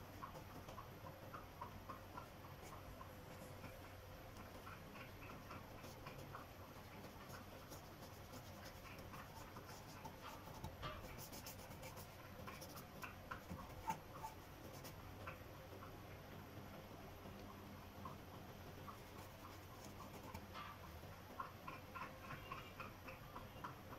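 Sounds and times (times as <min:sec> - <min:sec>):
paintbrush dabbing on canvas: 0:04.5 - 0:15.0.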